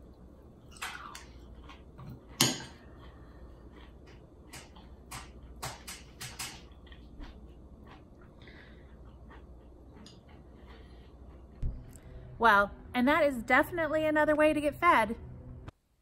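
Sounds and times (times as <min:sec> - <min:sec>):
crunchy chewing: 0:00.7 - 0:05.1, 0:06.6 - 0:11.6.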